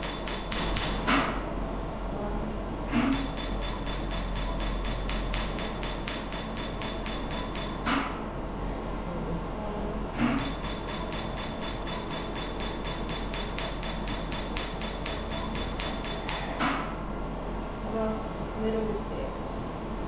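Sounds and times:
steady high machine beep: 10.4s - 16.3s.

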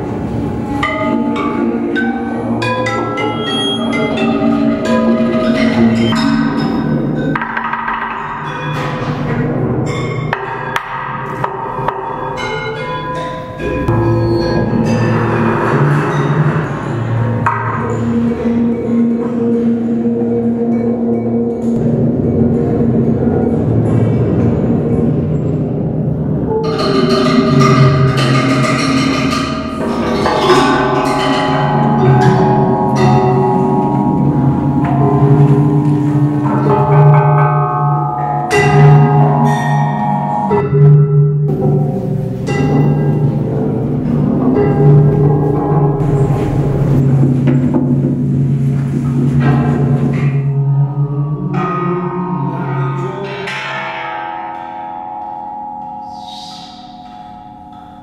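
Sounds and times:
deep sustained ringing tone: 0.0s - 58.0s
mallets striking metal sculptures: 0.0s - 58.0s.

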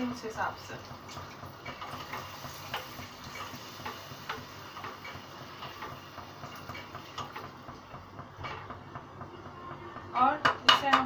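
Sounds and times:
spatula scraping cooking pan: 1.2s - 7.6s, 8.4s - 8.8s.

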